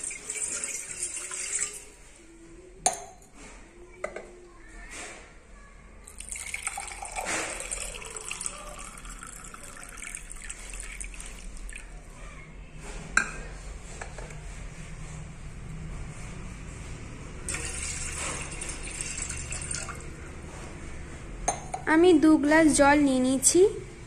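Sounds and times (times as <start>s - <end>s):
water pouring into metal tumbler: 0.0s - 2.0s, 6.1s - 12.0s, 17.5s - 20.2s.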